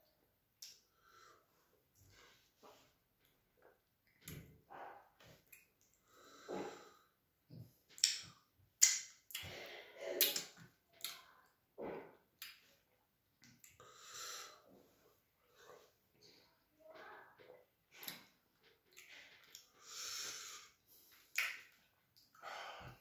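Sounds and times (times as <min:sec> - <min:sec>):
wet mouth eating sounds: 0:10.2 - 0:11.4.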